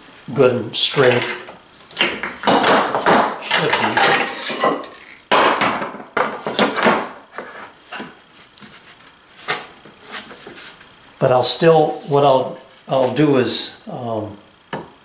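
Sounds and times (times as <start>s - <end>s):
wooden boards knocking: 2.0s - 4.2s, 5.3s - 7.2s
boards scraping: 6.2s - 10.9s.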